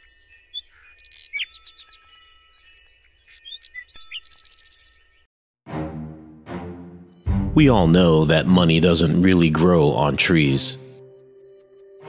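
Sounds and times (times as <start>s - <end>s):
bird trill: 0.0s - 5.3s
faint chime tones: 0.0s - 5.3s
songbirds chirping: 0.0s - 5.3s.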